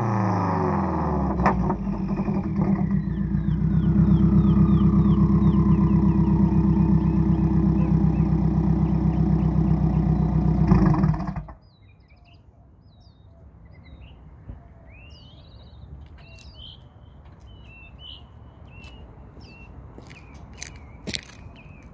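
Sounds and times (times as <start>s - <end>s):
car engine idling: 0.6s - 11.6s
birds chirping: 1.4s - 21.9s.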